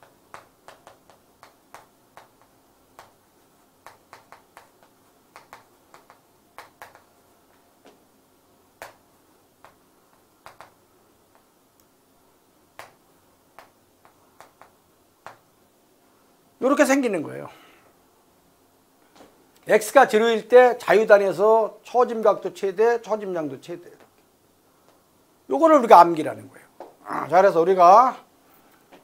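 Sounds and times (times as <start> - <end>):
chalk tapping on a chalkboard: 0.0 - 3.2, 3.8 - 7.1, 9.6 - 11.5.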